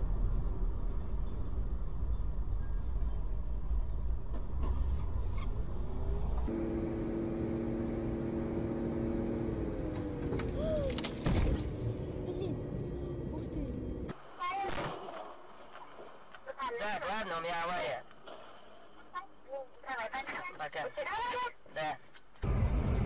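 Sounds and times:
car engine and road rumble: 0.0 - 14.3, 22.3 - 23.0.

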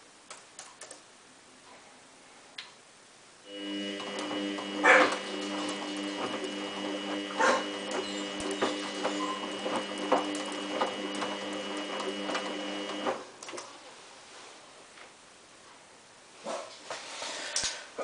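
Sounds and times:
washing machine motor whine: 3.5 - 13.6.

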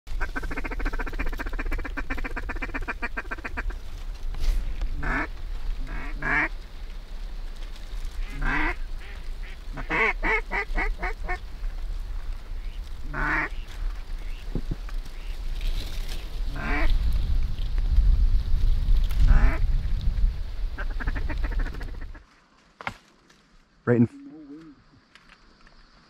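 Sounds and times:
duck quacking: 0.2 - 3.8, 5.0 - 6.5, 8.2 - 11.4, 13.1 - 13.6, 16.5 - 16.9.

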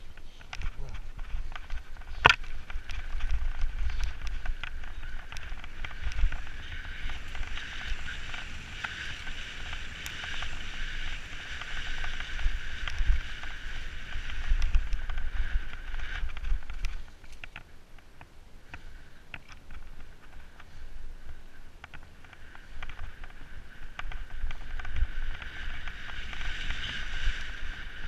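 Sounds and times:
steady high whir: 0.0 - 16.9
wind buffeting microphone: 0.0 - 17.5, 19.6 - 28.0
bike knocking and rattling: 0.0 - 28.0.

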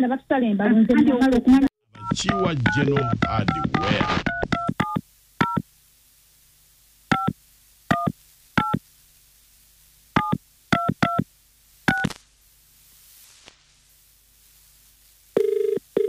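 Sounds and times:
phone keypad tones: 2.0 - 5.6, 7.1 - 8.8, 10.2 - 11.2.

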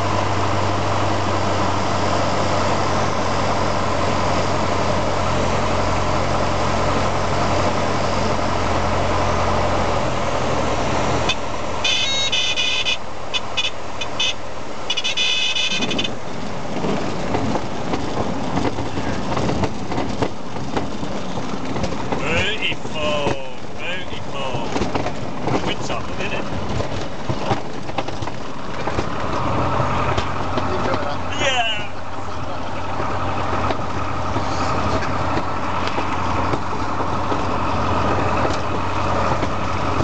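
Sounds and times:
aircraft piston engine: 0.0 - 16.7, 29.2 - 40.0
high buzzing stall warning tone: 11.3 - 16.0
wheels rumbling over grass: 13.1 - 40.0.

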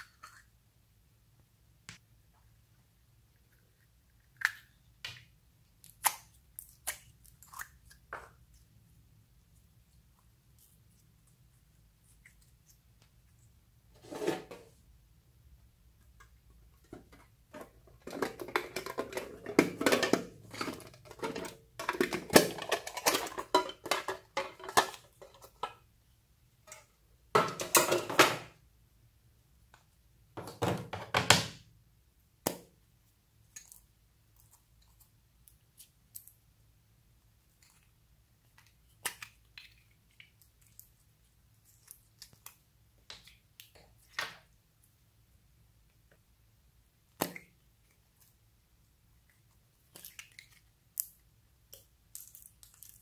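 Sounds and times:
slime squishing by hand: 3.3 - 13.9.

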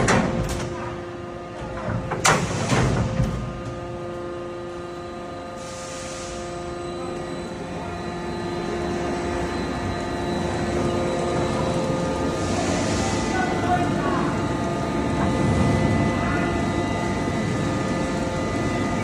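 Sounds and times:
roll forming machine humming: 0.0 - 19.0.

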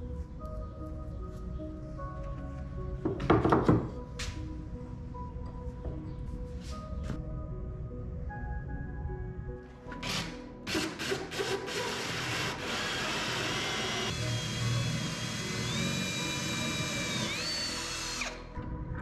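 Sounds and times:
cordless drill boring through wood: 10.0 - 18.4.

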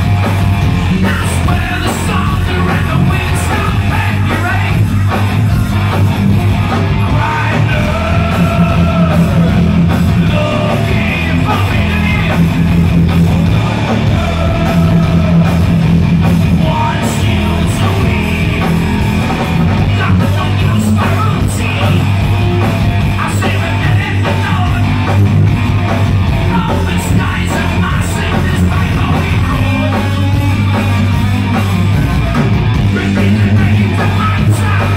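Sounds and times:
bass guitar: 0.0 - 34.9
distorted electric guitar: 0.0 - 34.9
drums: 0.0 - 34.9
man singing: 0.9 - 5.1, 6.9 - 15.7, 16.5 - 18.8, 19.8 - 22.2, 23.1 - 25.2, 26.4 - 30.9, 32.9 - 34.9.

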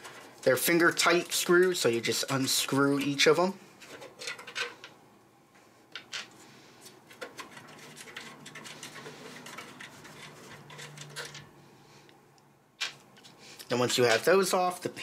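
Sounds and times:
thumbscrews clicking and scraping: 6.8 - 11.5.

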